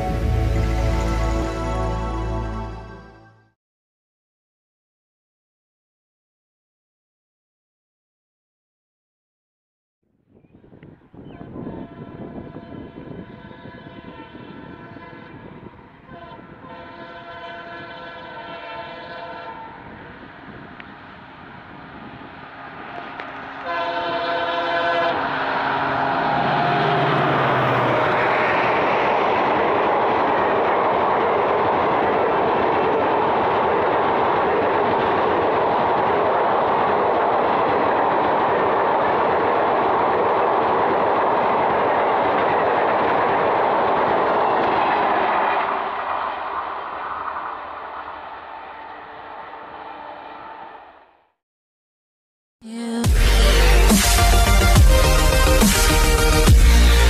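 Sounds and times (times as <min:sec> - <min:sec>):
diesel locomotive horn: 0:11.2 - 0:20.3, 0:22.9 - 0:28.3
train wheels rumbling on rail: 0:11.2 - 0:49.4.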